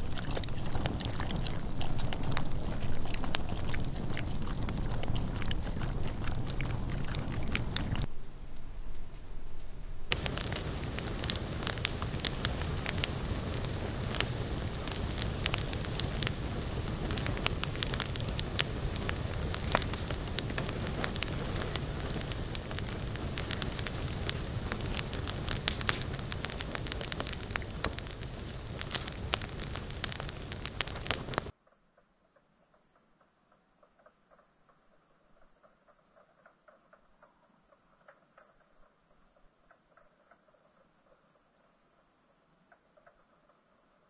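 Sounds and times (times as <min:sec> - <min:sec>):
campfire crackling and popping: 0:00.0 - 0:08.1, 0:10.1 - 0:31.5.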